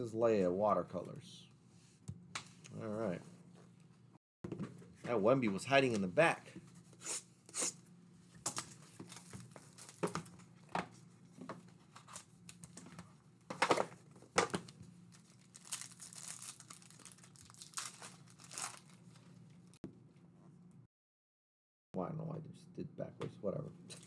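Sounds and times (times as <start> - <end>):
foil pack tearing and crinkling: 8.5 - 10.2, 14.5 - 19.2.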